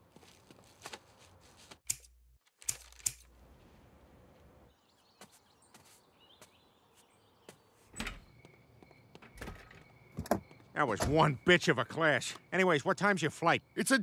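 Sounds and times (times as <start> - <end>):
faint bird chirps: 4.7 - 14.0.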